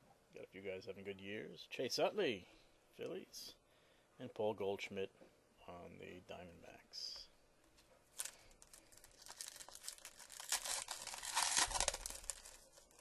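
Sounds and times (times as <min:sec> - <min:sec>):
foil wrapper crinkling: 0:08.1 - 0:13.0.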